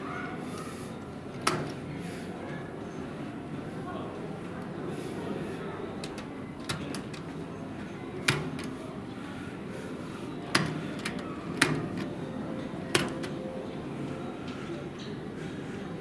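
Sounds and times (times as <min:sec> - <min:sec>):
room hum: 0:00.0 - 0:16.0
push buttons clicking: 0:06.0 - 0:07.4, 0:08.2 - 0:08.8, 0:10.4 - 0:13.6.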